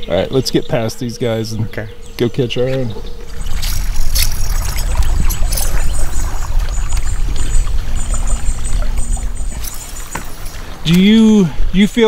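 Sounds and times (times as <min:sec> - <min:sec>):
water washing along hull: 0:03.0 - 0:12.0.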